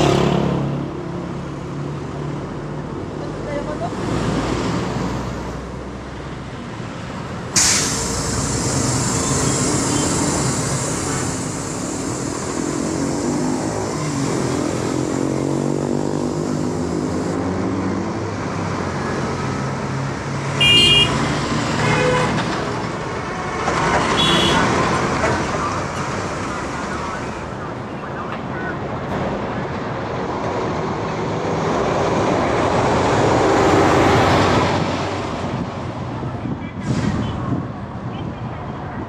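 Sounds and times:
road traffic passing: 0.0 - 39.0
sudden hiss: 7.5 - 13.1
vehicle horn tooting: 20.6 - 21.2, 21.8 - 22.4, 24.1 - 24.7.

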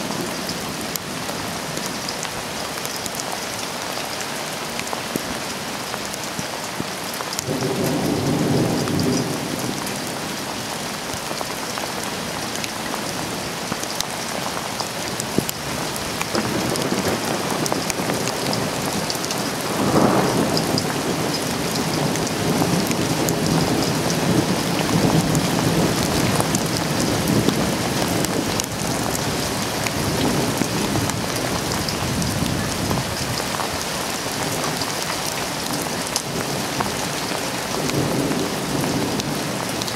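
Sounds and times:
heavy rain hissing: 0.0 - 39.9
thunder rumbling: 7.4 - 13.5, 15.0 - 33.7, 34.3 - 39.9.

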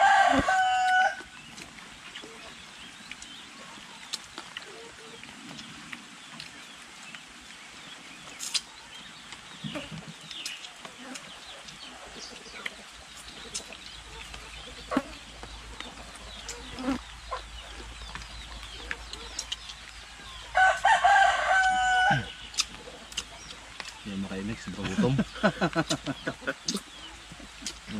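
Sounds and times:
rooster crowing: 0.0 - 1.3, 20.2 - 22.4
faint scattered clicks: 8.3 - 14.6, 15.4 - 20.4.

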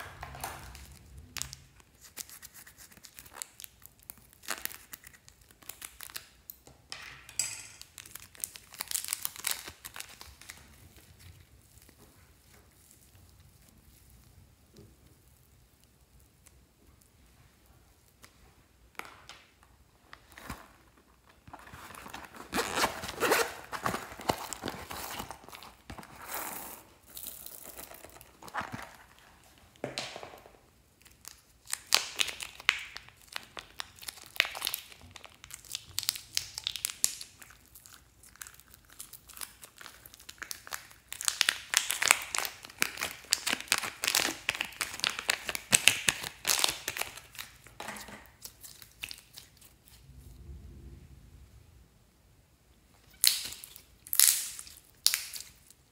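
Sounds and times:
plastic bag crinkling and tearing: 0.0 - 6.4, 7.8 - 12.0, 20.2 - 29.6, 31.0 - 50.0, 53.1 - 55.9.

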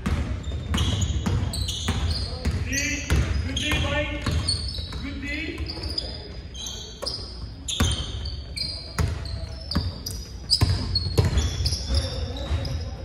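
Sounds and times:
sneakers squeaking: 0.0 - 13.0
basketball bouncing on hardwood: 10.6 - 11.6.

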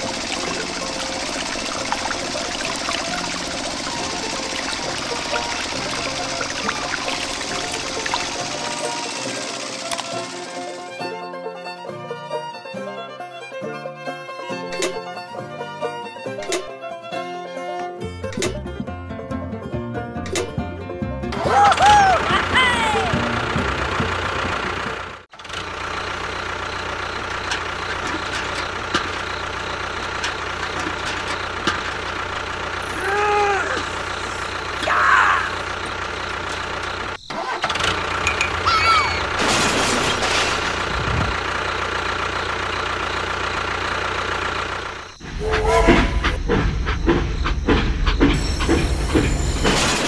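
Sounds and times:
rattling clicking clatter: 0.0 - 11.0, 23.5 - 32.8, 35.6 - 38.6
tractor engine idling: 0.0 - 12.8, 21.3 - 50.0.

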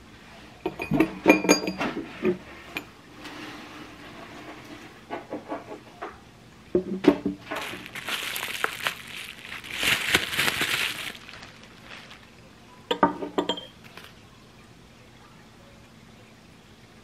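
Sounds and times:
porcelain teacups clinking: 0.6 - 2.9, 12.9 - 13.8
bubble wrap rustling: 7.4 - 12.5, 13.8 - 14.2.

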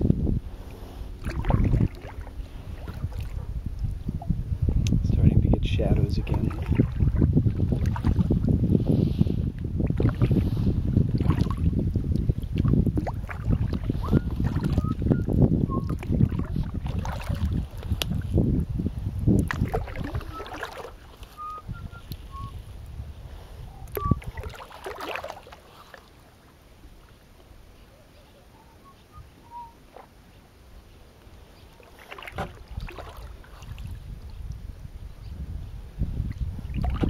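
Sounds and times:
wind on microphone: 0.0 - 25.9, 30.7 - 37.0
paddle splashing in water: 1.0 - 4.0, 6.2 - 8.5, 9.8 - 18.4, 19.3 - 22.5, 23.9 - 27.2, 29.6 - 30.2, 31.7 - 34.6, 36.3 - 37.0.

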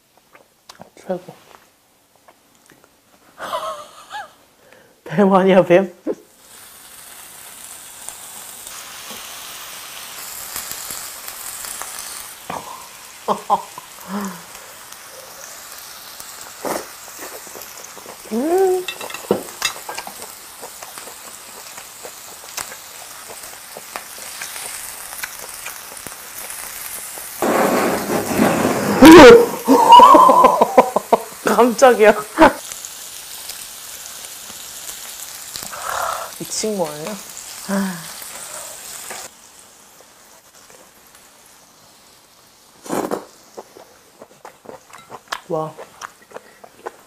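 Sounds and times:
meat sizzling on a grill: 5.1 - 47.0
sharp pop: 27.4 - 29.1.

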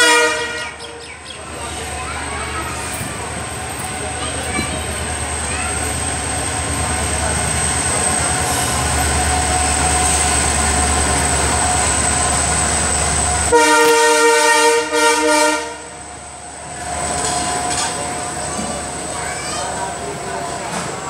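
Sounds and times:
train horn blast: 0.0 - 0.9, 13.5 - 16.0
train passing by: 0.0 - 21.0.

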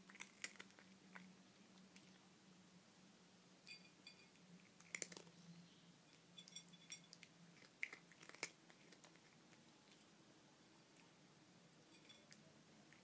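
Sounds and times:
cat crunching dry kibble: 0.0 - 2.2, 4.6 - 5.4, 7.1 - 10.1.

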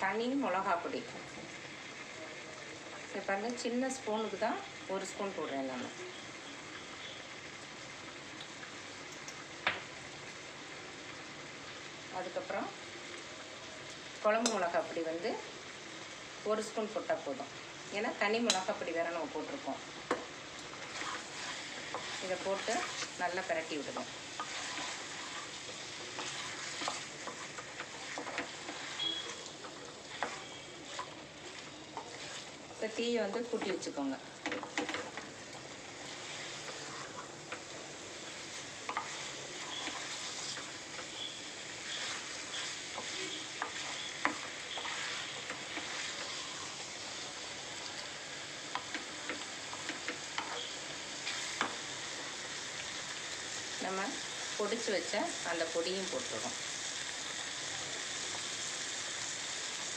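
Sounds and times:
frying sizzle: 0.0 - 59.9
spatula scraping pan: 20.7 - 32.6, 36.1 - 37.7, 38.3 - 46.9, 48.8 - 51.8.

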